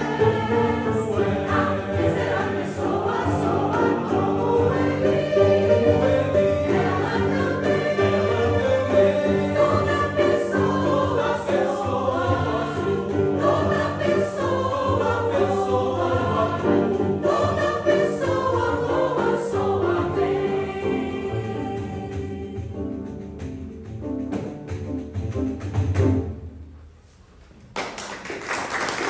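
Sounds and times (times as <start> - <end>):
mixed choir singing: 0.0 - 23.2
grand piano accompaniment: 0.0 - 26.8.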